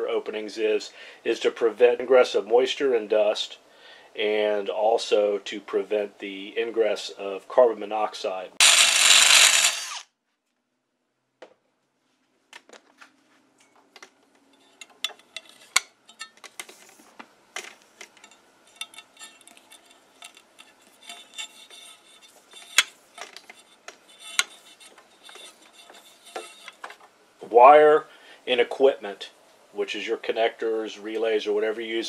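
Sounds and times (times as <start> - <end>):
hands working rubber grommet: 14.0 - 27.2.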